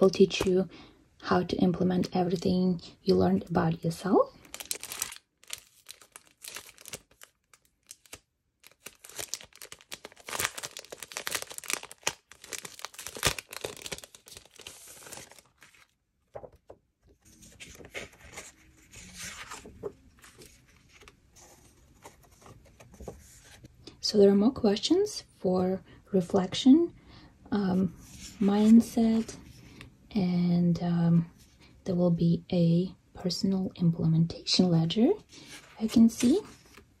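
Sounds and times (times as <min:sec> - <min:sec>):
plastic sleeve tearing and crinkling: 0:04.4 - 0:15.9
paper sheets rustling: 0:04.4 - 0:23.7.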